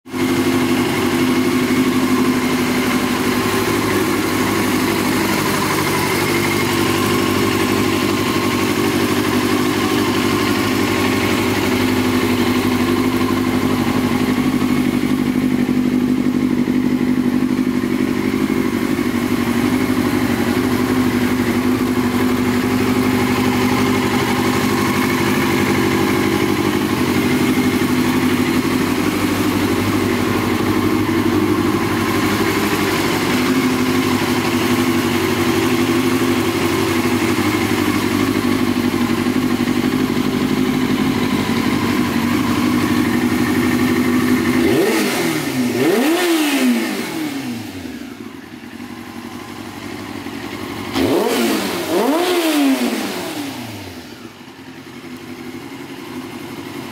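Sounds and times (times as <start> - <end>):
motorcycle engine idling: 0.1 - 56.9.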